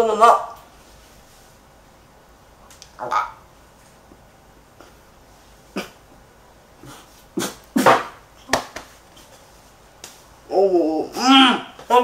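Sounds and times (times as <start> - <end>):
person coughing and spluttering: 5.8 - 6.0.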